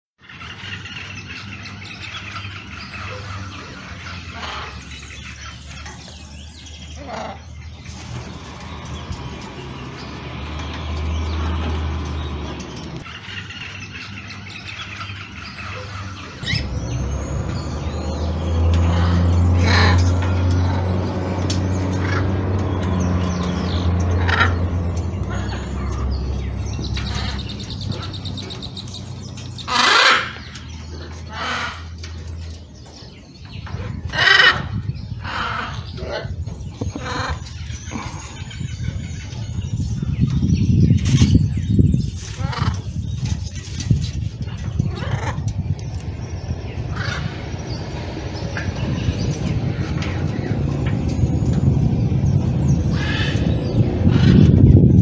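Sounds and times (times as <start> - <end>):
steady low rumble: 0.2 - 55.0
macaw squawking: 29.6 - 30.5
parrot calling: 29.6 - 32.0, 44.8 - 45.5.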